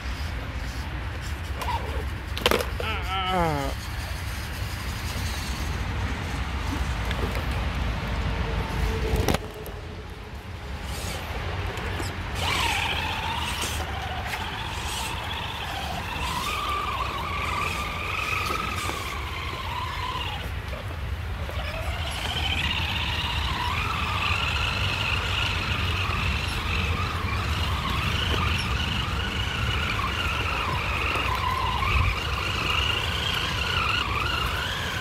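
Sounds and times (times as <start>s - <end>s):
electric motor whine: 21.5s - 35.0s.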